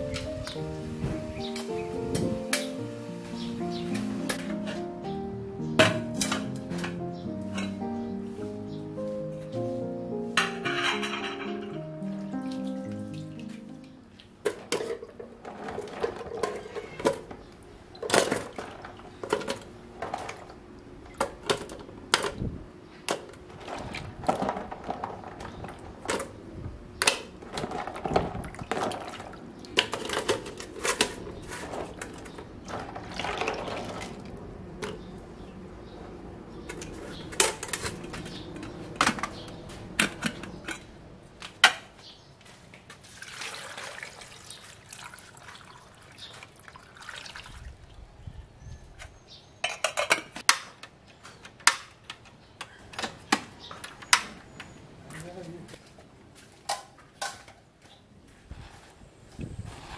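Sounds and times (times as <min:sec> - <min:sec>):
water sloshing and splashing: 0:12.0 - 0:22.5, 0:23.1 - 0:26.4, 0:27.3 - 0:35.0, 0:42.6 - 0:48.2.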